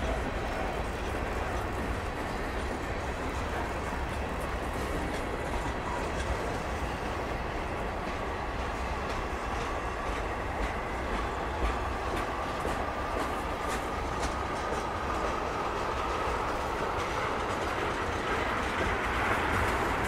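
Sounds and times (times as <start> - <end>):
train wheels clicking over rail joints: 0.0 - 20.0.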